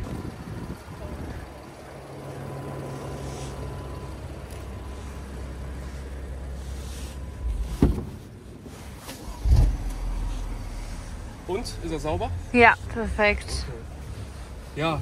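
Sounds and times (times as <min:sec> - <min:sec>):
car engine idling: 0:00.0 - 0:15.0
loud thumps: 0:07.7 - 0:08.2.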